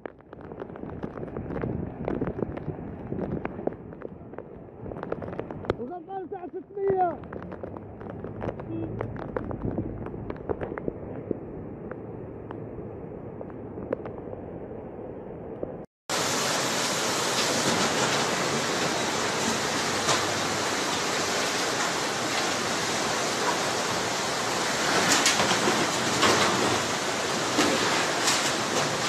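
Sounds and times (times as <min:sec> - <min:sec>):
floodwater rushing: 0:16.1 - 0:29.0.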